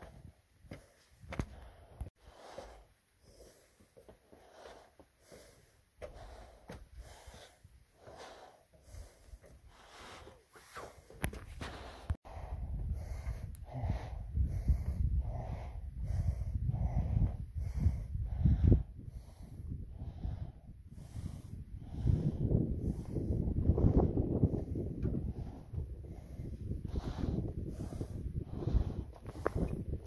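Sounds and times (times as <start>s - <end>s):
wind rumble on microphone: 11.2s - 30.0s.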